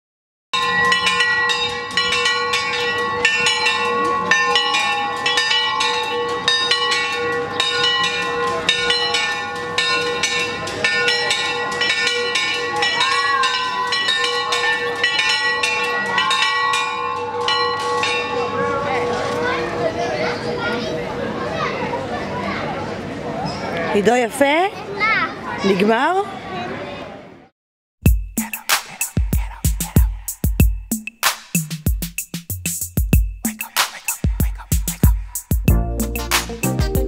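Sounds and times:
church bells ringing fast: 0.6s - 20.6s.

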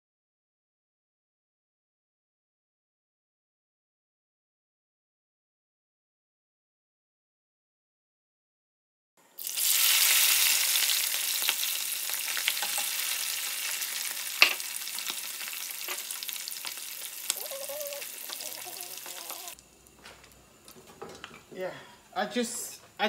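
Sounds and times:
food deep-frying in oil: 9.4s - 20.0s.

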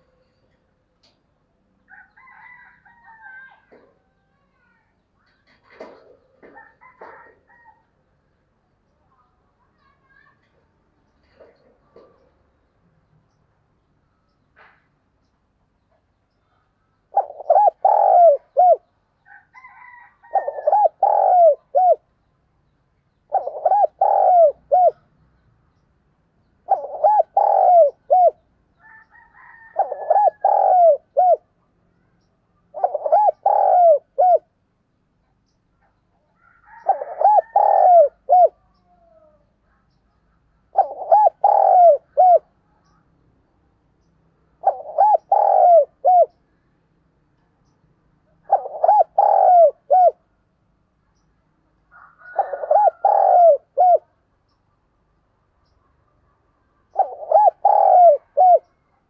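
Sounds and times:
dove cooing: 5.4s - 7.8s, 11.2s - 12.4s, 16.5s - 22.0s, 23.3s - 25.1s, 26.6s - 31.5s, 32.7s - 34.5s, 36.4s - 39.4s, 40.6s - 42.5s, 44.6s - 46.4s, 48.3s - 50.3s, 51.9s - 54.2s, 56.9s - 58.8s.

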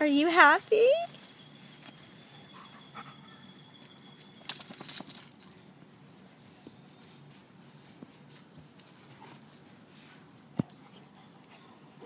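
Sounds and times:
metal collar tags jingling: 2.3s - 5.6s.

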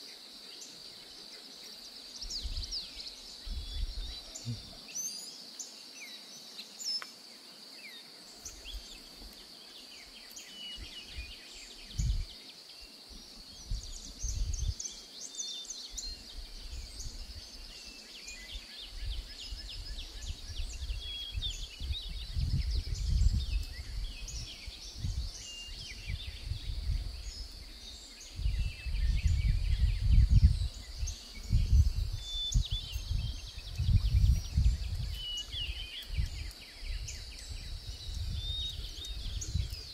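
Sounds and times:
high insect hum: 0.0s - 39.9s
small birds chirping and trilling: 0.0s - 39.9s
wind rumbling on microphone: 2.2s - 4.9s, 10.7s - 12.4s, 13.0s - 15.0s, 15.8s - 39.9s.

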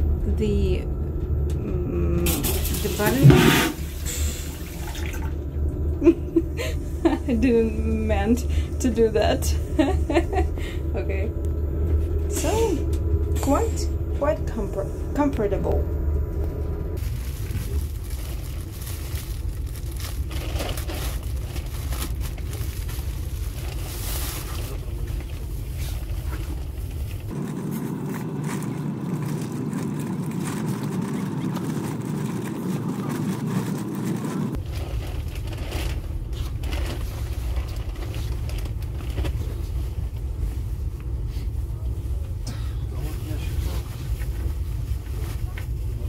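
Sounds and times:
train carriage rumble: 0.0s - 27.4s, 31.4s - 46.0s
higher dense hum: 0.0s - 46.0s
plastic bag crinkling: 17.0s - 31.7s, 32.6s - 39.7s.

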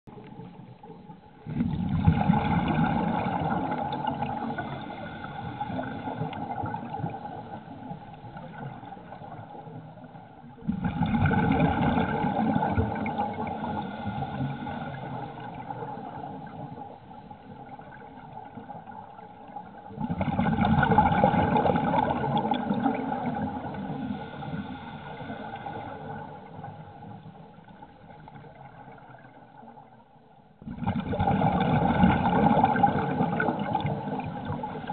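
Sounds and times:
underwater regulator bubbling: 0.1s - 9.7s, 10.6s - 16.8s, 30.6s - 34.9s
faint steady hum: 0.1s - 34.9s.

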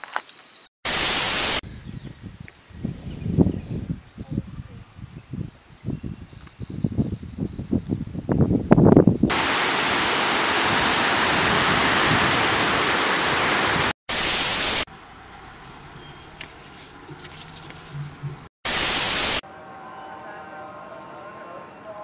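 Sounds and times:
loud static bursts: 0.9s - 1.6s, 9.3s - 14.9s, 18.6s - 19.4s.

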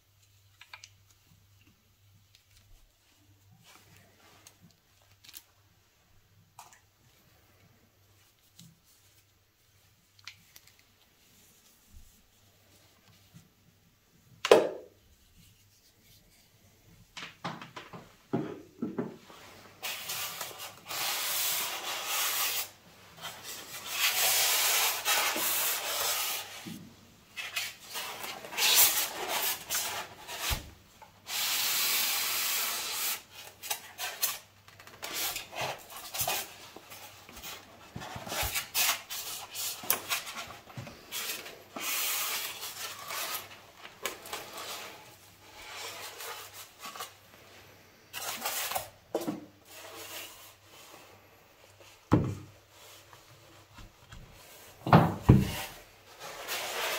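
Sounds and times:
polystyrene foam rubbing and scraping: 19.2s - 52.0s, 54.4s - 56.9s.

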